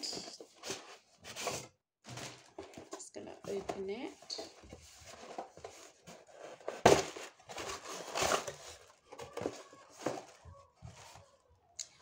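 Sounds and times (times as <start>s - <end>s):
cardboard rustling and scraping: 0.0s - 11.4s.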